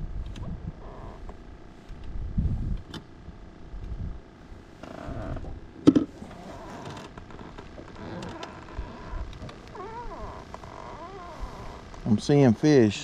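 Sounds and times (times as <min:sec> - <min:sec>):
wind rumbling on microphone: 0:00.0 - 0:04.3, 0:04.9 - 0:06.3.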